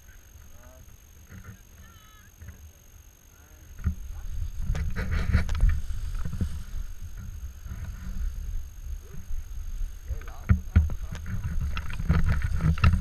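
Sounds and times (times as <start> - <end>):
wind buffeting microphone: 3.8 - 13.0
harness straps and buckles rustling: 11.0 - 13.0.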